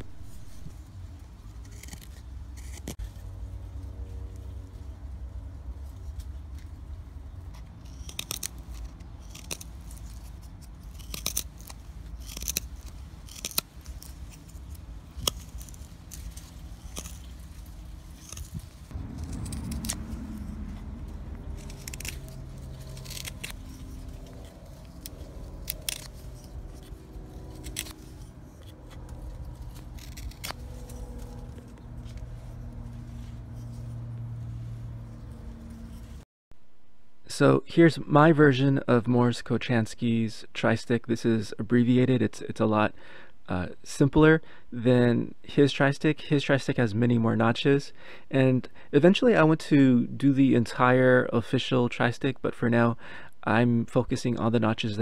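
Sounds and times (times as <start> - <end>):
low steady rumble: 0.0 - 38.3
knife shaving wood: 0.4 - 3.3, 7.4 - 34.0.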